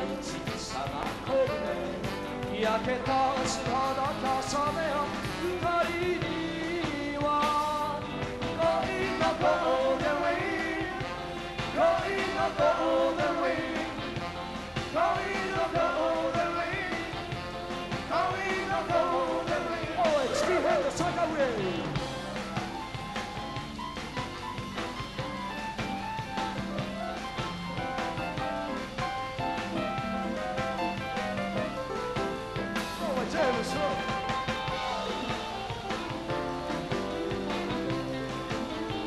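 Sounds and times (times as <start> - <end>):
man singing: 0.0 - 14.3, 14.9 - 22.1, 33.0 - 34.4
drums: 0.0 - 39.0
electric guitar: 0.0 - 39.0.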